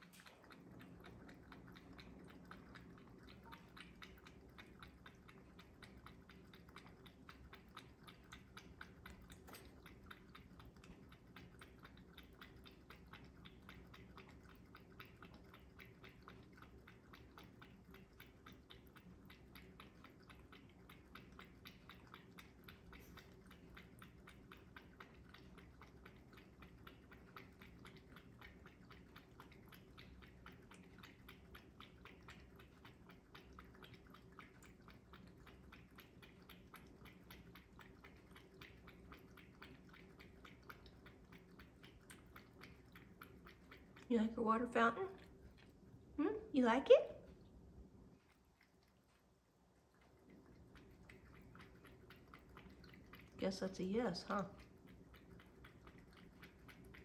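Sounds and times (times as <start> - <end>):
cat lapping water: 0.0 - 57.0.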